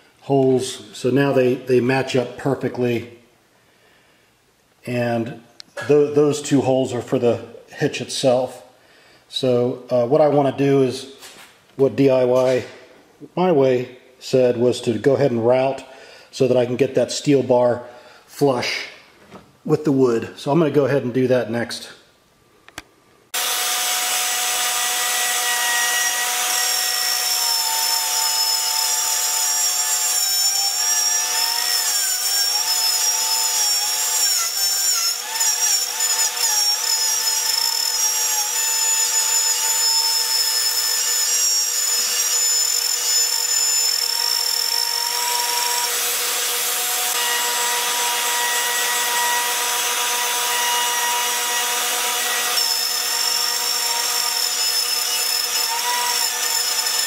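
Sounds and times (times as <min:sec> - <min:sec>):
router cutting wood: 0:23.4 - 0:57.0.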